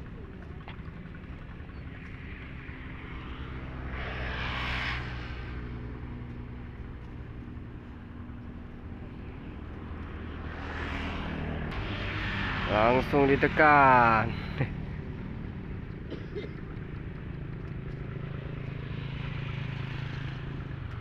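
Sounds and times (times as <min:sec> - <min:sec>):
passing vehicle engine drone: 0:00.0 - 0:21.0.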